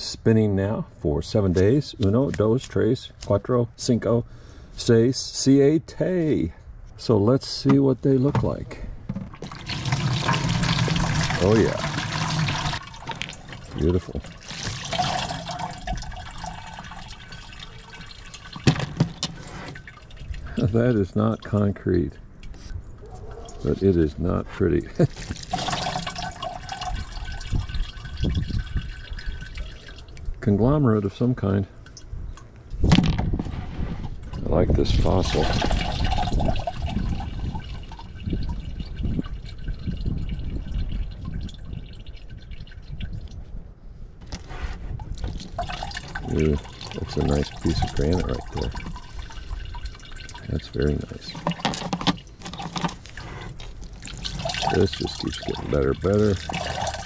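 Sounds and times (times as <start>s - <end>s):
wet rocks handled in plastic bucket: 7.6s - 19.9s, 44.2s - 57.0s
water dripping and trickling: 9.3s - 24.1s, 24.8s - 30.4s, 31.8s - 32.7s, 35.1s - 43.5s, 45.0s - 57.0s.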